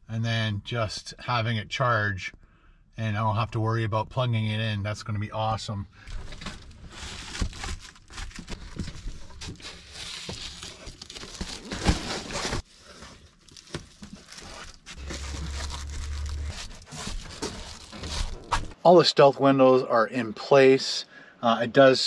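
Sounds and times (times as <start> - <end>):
window covers crinkling and rustling: 6.2 - 18.8
low steady hum: 14.0 - 18.7.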